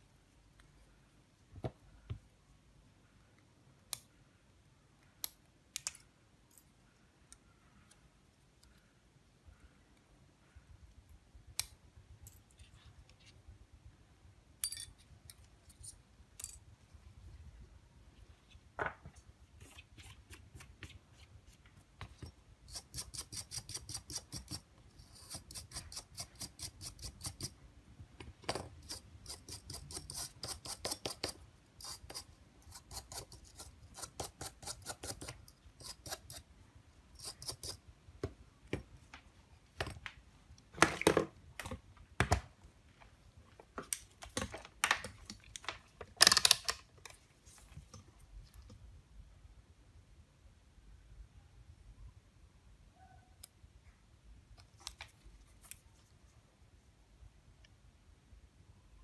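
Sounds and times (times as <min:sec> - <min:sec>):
tools clicking and knocking: 0:43.8 - 0:47.2.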